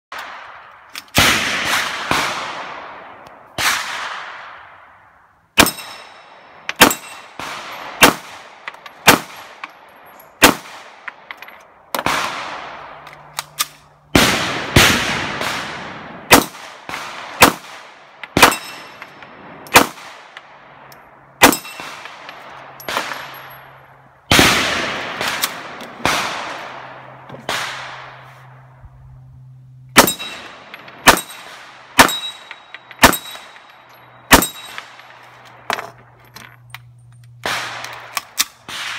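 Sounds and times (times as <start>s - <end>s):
bullets ringing on steel plates: 5.6s - 8.0s, 18.4s - 19.1s, 21.4s - 22.0s, 30.0s - 35.2s.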